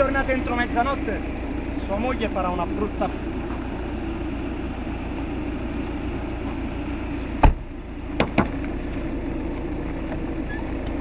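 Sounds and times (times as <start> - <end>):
low background rumble: 0.0 - 11.0
car door slamming: 7.3 - 8.7.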